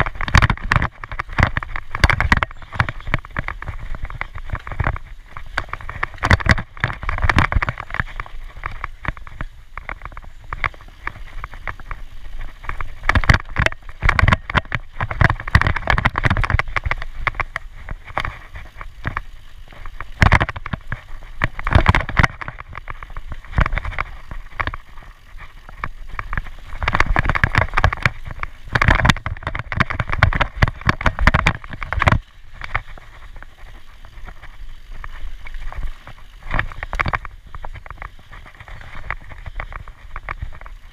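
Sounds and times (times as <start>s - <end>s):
bike rattling and knocking: 0.0s - 40.9s
tyres rumbling over dirt trail: 0.0s - 40.9s
wind on microphone: 0.0s - 40.9s.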